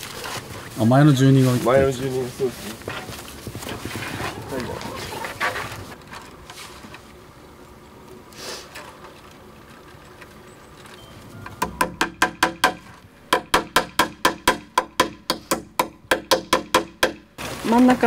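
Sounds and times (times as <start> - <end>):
hammer driving nails into wood: 11.6 - 17.2.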